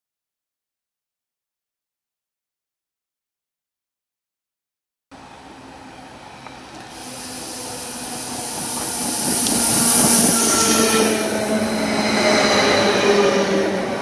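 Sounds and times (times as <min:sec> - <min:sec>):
electric train passing: 0:05.2 - 0:14.0
high hiss: 0:06.5 - 0:12.0.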